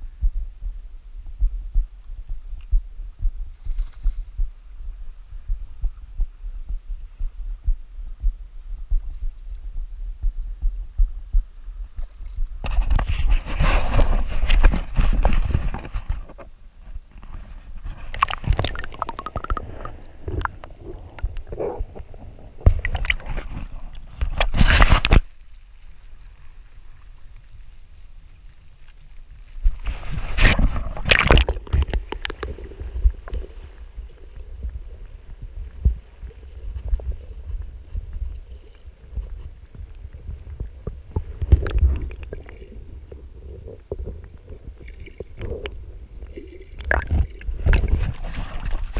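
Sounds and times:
muffled low rumble: 0:00.0 - 0:24.3, 0:29.2 - 0:46.3
splashing and handling noise: 0:17.8 - 0:48.9
seawater sloshing and gurgling: 0:18.0 - 0:21.1, 0:29.8 - 0:39.2, 0:40.2 - 0:48.9.

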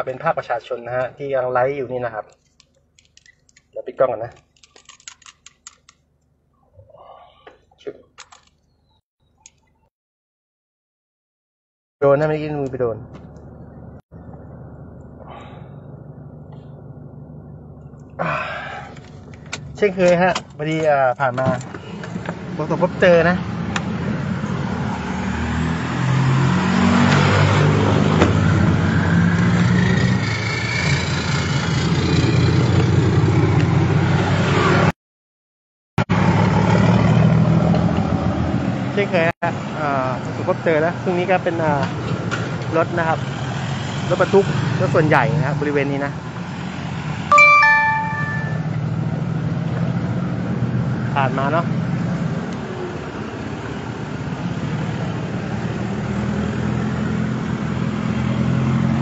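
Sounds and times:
road traffic noise: 0:12.0 - 0:34.9, 0:36.0 - 0:59.0
vehicle engine low hum: 0:12.6 - 0:22.5.

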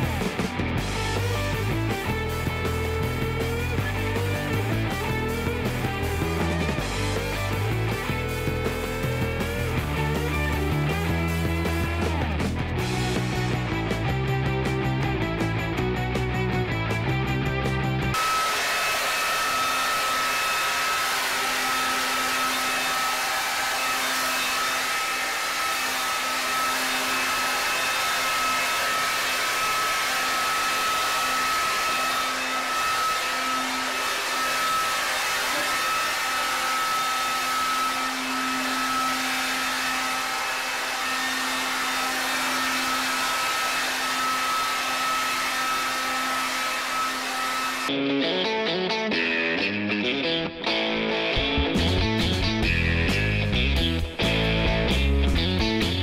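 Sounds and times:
electric leaf blower running: 0:00.0 - 0:47.9.

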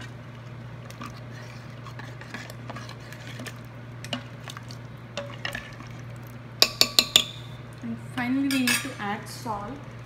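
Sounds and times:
ladle scraping a steel pot: 0:01.0 - 0:04.2
ladle knocking on pot: 0:06.6 - 0:07.5.

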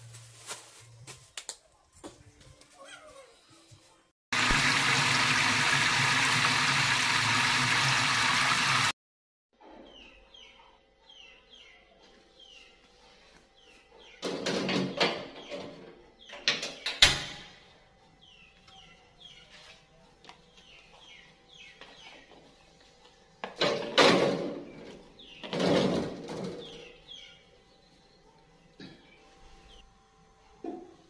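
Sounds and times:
birds chirping: 0:18.1 - 0:23.1, 0:24.6 - 0:29.8.

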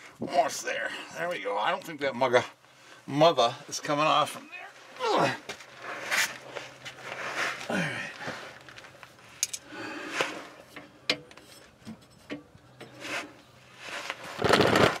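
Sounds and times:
metal scraping and rubbing: 0:09.3 - 0:15.0.

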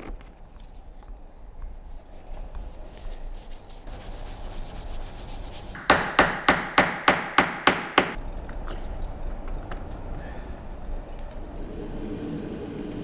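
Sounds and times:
sandpaper rubbing on wood: 0:02.8 - 0:05.8.

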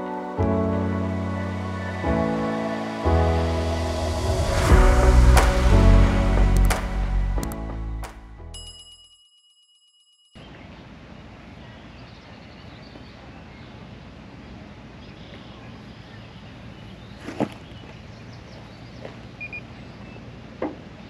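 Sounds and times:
wind-like outdoor noise: 0:00.0 - 0:07.5, 0:10.4 - 0:21.0.

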